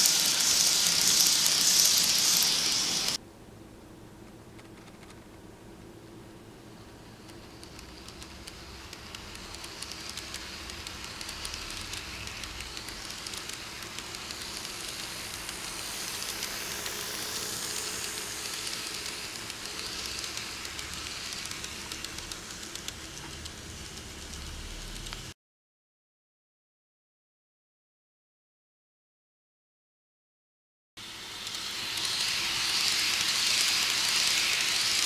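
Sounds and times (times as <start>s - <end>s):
model train rattling on track: 0.0s - 3.2s, 7.1s - 25.2s, 31.0s - 35.0s.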